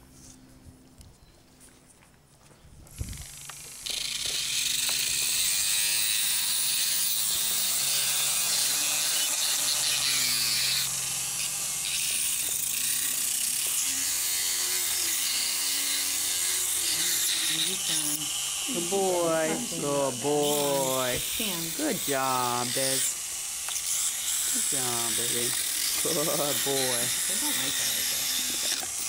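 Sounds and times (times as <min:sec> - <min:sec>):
dental grinder whining: 0:03.1 - 0:29.0.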